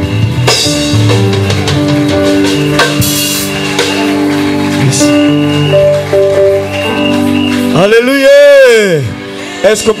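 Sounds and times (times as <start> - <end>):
drum and cymbal hits: 0.0 - 7.7
worship band music: 0.0 - 10.0.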